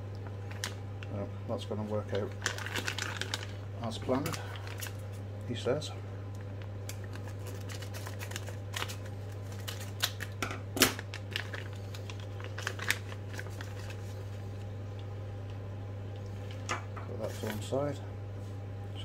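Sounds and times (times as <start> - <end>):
steady low hum: 0.0 - 19.0
plastic bag crinkling: 1.9 - 5.2, 6.9 - 14.7.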